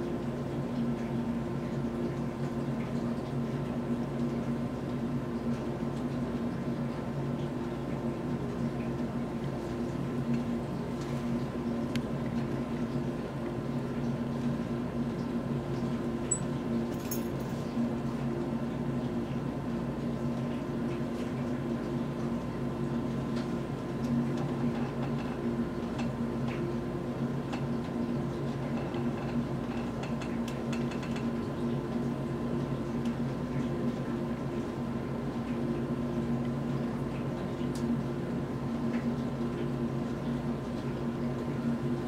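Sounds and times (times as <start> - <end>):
low room tone hum: 0.0 - 42.0.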